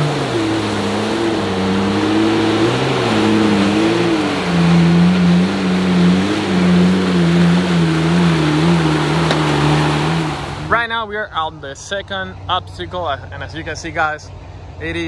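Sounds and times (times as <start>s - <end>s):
engine revving under load: 0.0s - 11.0s
mud and water splashing: 0.0s - 14.7s.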